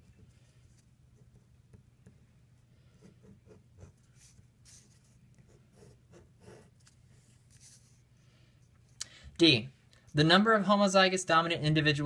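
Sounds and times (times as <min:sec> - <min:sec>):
low room hum: 0:00.0 - 0:12.0
pen scratching on paper: 0:02.9 - 0:07.8.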